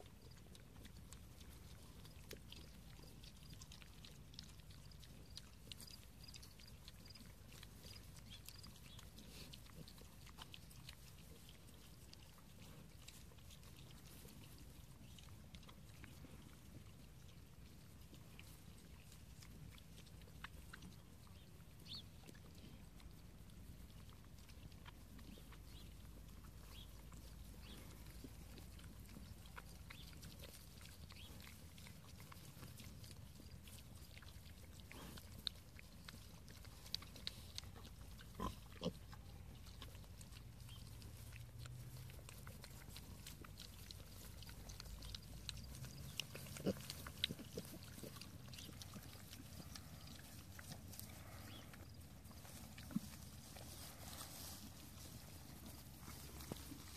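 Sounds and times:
piglets grunting: 36.4 - 54.2
clicks and rustles in grass: 39.6 - 56.9.

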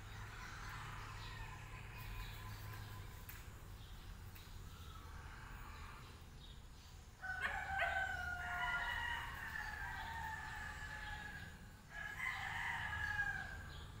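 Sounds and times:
rooster crowing: 7.2 - 13.8.

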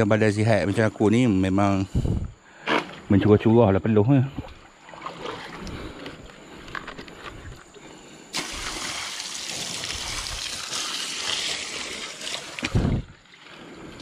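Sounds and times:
water splashing and pouring: 4.8 - 5.8, 8.3 - 14.0.

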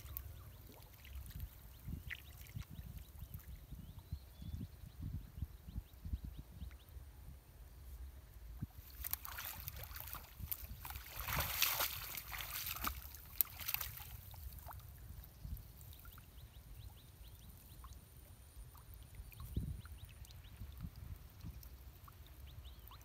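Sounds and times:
water splashing and sloshing: 0.0 - 3.6, 8.6 - 15.2
water dripping: 8.8 - 14.8.

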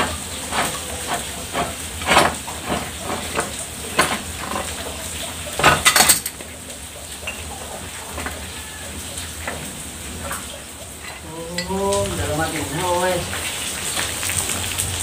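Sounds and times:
metal parts clinking and knocking: 5.6 - 6.4.

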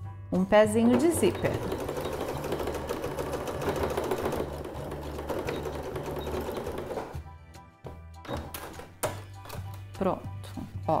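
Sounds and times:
sewing machine stitching: 0.7 - 7.2.

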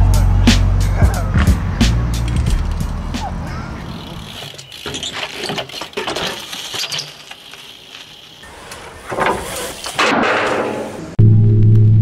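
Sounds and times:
bike clattering on street: 2.2 - 11.0.

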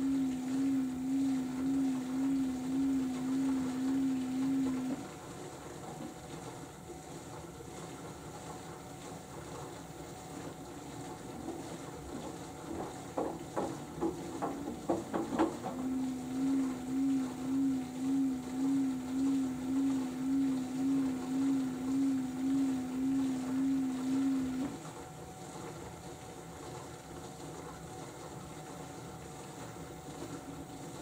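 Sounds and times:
washing machine motor hum: 0.0 - 31.0
clicks and knocks from drum: 12.7 - 15.9.

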